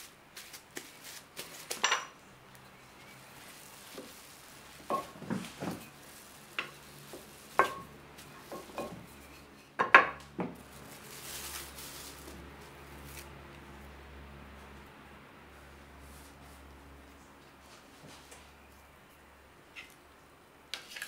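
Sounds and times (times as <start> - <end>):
plastic wrap crackling: 2.5 - 9.1, 10.5 - 13.6.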